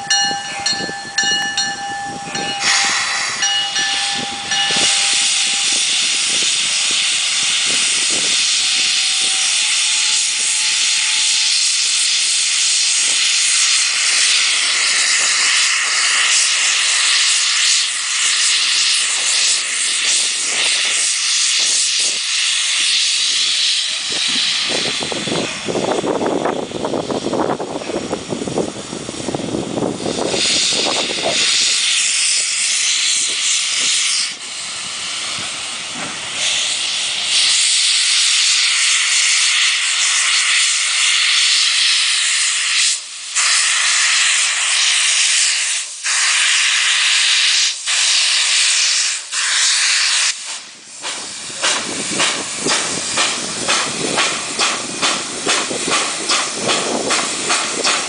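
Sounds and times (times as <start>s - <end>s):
locomotive exhaust chuffs: 0.0s - 58.0s
steam locomotive hissing: 0.0s - 58.0s.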